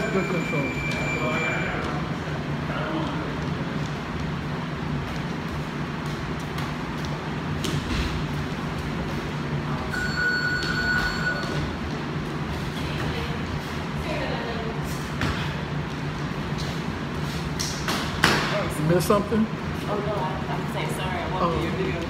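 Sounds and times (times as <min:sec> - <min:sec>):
brief high steady tone: 0:00.0 - 0:01.8, 0:09.9 - 0:11.6
low hum and rumble: 0:00.0 - 0:22.0.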